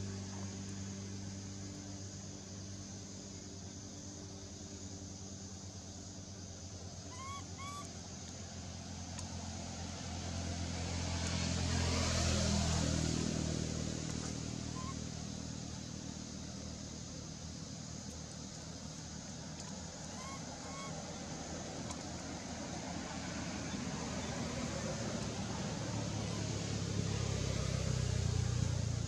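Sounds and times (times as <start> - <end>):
vehicle engine passing by: 8.5 - 17.2, 19.8 - 29.0.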